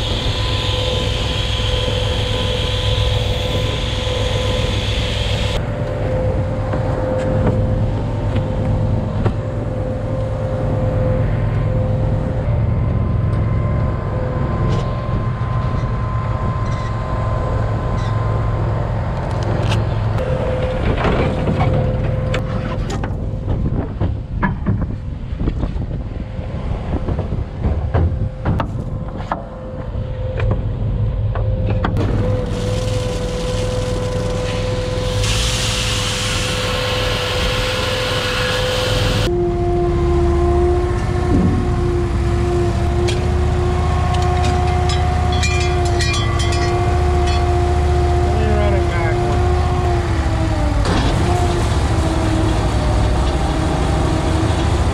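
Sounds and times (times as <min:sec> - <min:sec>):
machinery engine whining: 0:00.0 - 0:24.4, 0:25.9 - 0:54.9
burst of hiss: 0:35.0 - 0:39.2.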